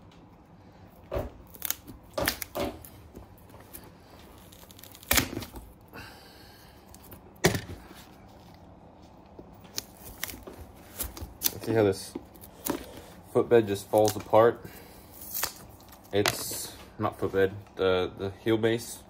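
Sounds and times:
boot heel cracking and snapping: 1.2s - 5.7s.

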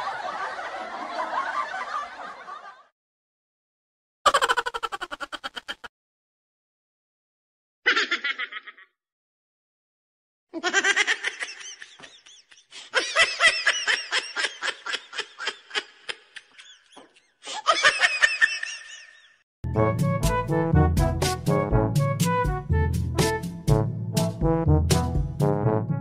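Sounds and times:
high-pitched laughter: 4.3s - 5.9s, 7.9s - 9.0s, 10.6s - 19.4s.

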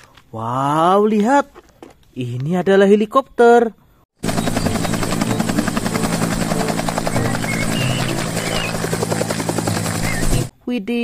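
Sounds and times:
helicopter rotor beat: 4.2s - 10.5s
turbine running: 4.2s - 10.5s.

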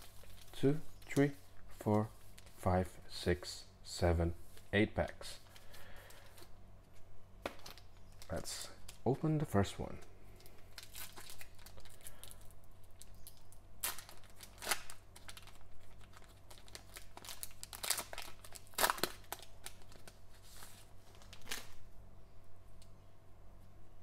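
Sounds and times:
foil wrapper crinkling: 0.0s - 1.3s, 7.4s - 21.8s.

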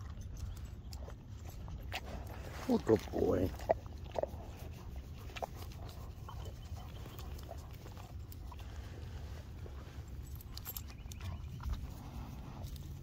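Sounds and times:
collar tags clicking: 0.0s - 8.9s, 9.6s - 13.0s
paws rustling on gravel: 0.0s - 13.0s
steady low rumble: 0.0s - 13.0s.

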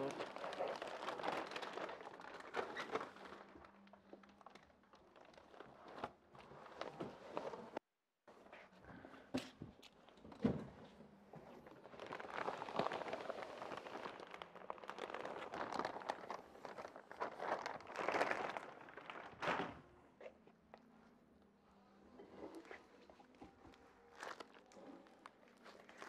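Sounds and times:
plastic wrapping rustling: 0.0s - 7.8s, 11.5s - 19.8s, 22.4s - 26.0s.

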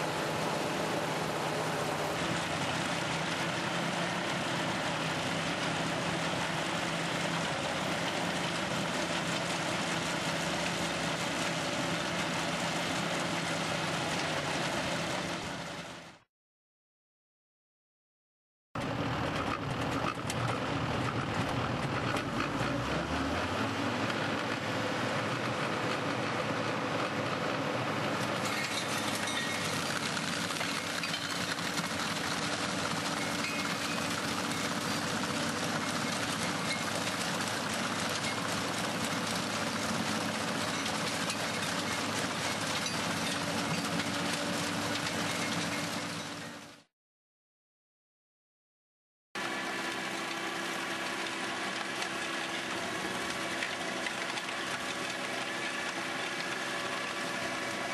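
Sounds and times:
tractor engine: 0.0s - 16.2s, 18.8s - 46.9s, 49.4s - 57.9s
constant machine hum: 24.3s - 46.7s
stone crusher grinding rocks: 28.2s - 46.5s
stone crusher rattling: 28.4s - 32.4s.

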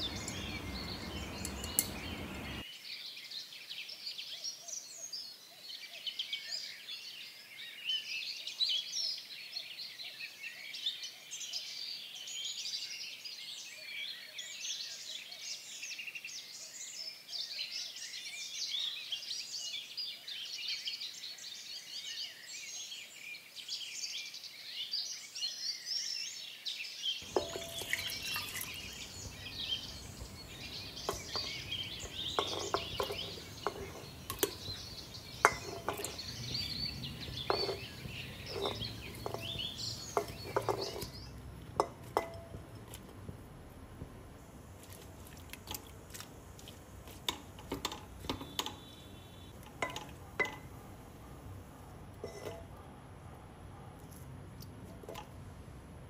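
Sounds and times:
mango slices clinking into metal pot: 0.0s - 2.6s, 27.2s - 42.8s, 47.2s - 50.8s, 52.2s - 52.7s
birds chirping: 0.0s - 2.7s, 27.2s - 42.7s, 44.4s - 53.9s.

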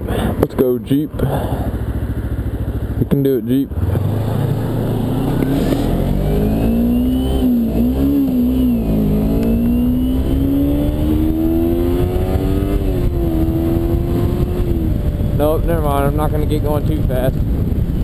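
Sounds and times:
motorcycle engine accelerating: 0.0s - 18.0s
wind noise: 5.4s - 18.0s.

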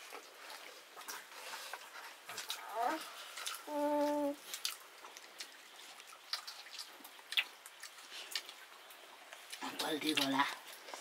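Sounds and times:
wet smacks of eating by hand: 4.5s - 10.4s.

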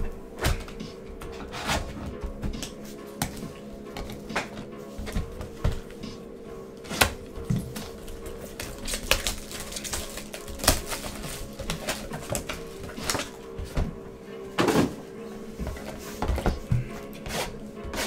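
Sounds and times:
cardboard boxes knocking on table: 15.6s - 18.0s.

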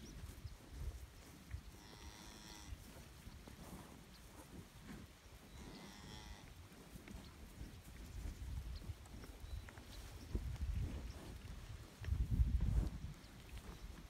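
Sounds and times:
cattle mooing: 5.5s - 6.5s.

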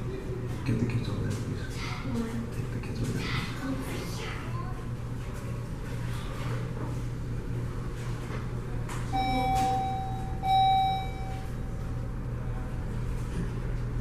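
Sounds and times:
steady low hum: 0.0s - 14.0s
electronic chime: 9.2s - 11.6s.

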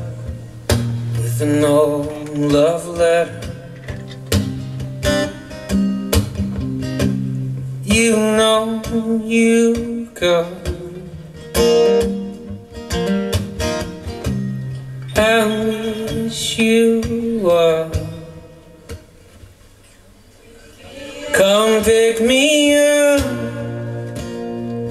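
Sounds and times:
man singing: 0.0s - 0.5s, 1.2s - 3.9s, 7.8s - 11.4s, 15.1s - 18.8s, 20.5s - 24.9s
strummed acoustic guitar: 0.0s - 24.9s.

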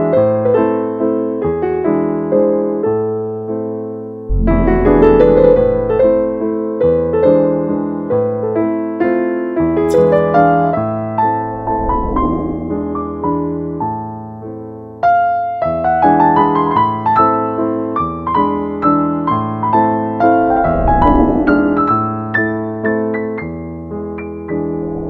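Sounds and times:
slow piano music: 0.0s - 11.6s.

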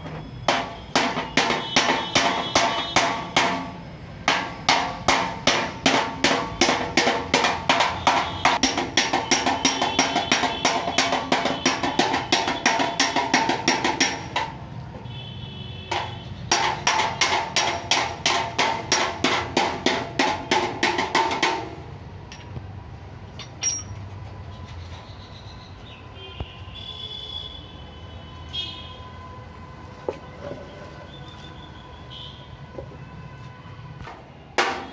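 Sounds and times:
hammer striking steel bumper: 0.0s - 14.6s, 15.9s - 22.6s, 34.1s - 34.9s.

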